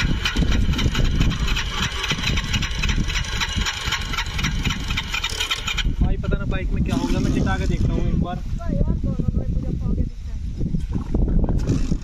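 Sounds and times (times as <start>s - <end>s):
motorcycle engine idling: 0.0s - 6.2s.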